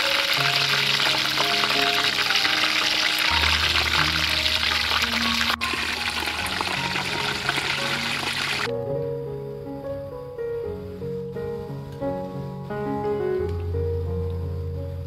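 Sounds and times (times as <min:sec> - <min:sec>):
deep-frying sizzle in hot oil: 0:00.0 - 0:08.7
background music: 0:00.0 - 0:15.0.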